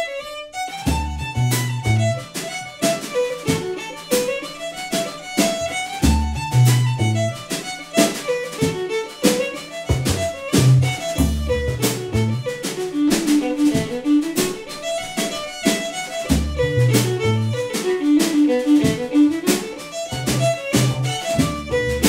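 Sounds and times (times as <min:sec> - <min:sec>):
fiddle playing: 0:00.0 - 0:22.0
drum kit beat: 0:00.6 - 0:22.0
plucked bass line: 0:00.8 - 0:02.3, 0:05.5 - 0:07.5, 0:09.9 - 0:14.5, 0:16.2 - 0:22.0.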